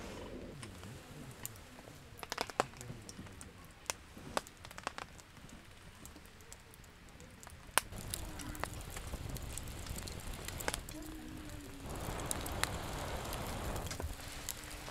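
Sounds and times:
campfire crackling and popping: 0.0 - 14.9.

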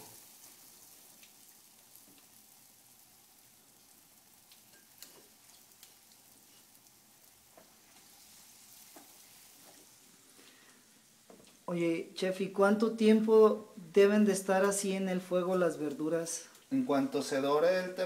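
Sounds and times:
vegetables frying in hot oil: 0.0 - 13.2, 14.4 - 18.0.

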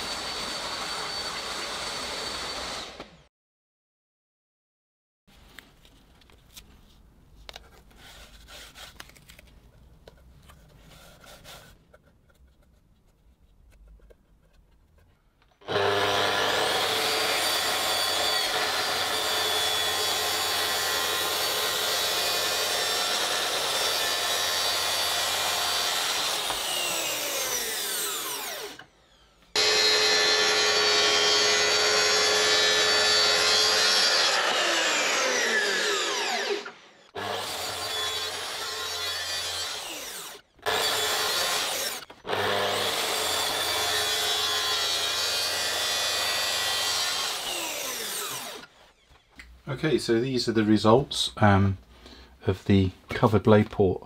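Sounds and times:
plunge saw cutting plywood: 0.0 - 3.2, 15.6 - 49.4
saw winding down whine: 0.0 - 3.3, 15.6 - 49.4
tape rustling: 5.3 - 15.4.

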